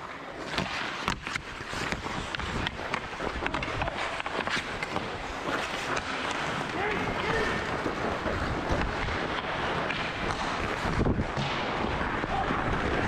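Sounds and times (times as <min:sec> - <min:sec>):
skates scraping on ice: 0:00.0 - 0:13.0
wind on microphone: 0:06.7 - 0:13.0.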